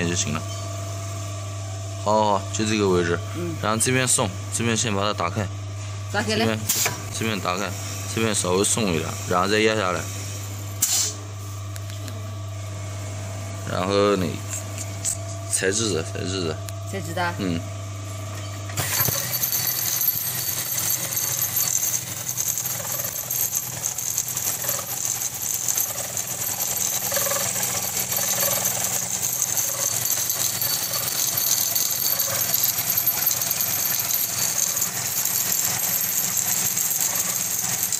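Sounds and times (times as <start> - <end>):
sewing machine rattling: 18.8 - 37.9.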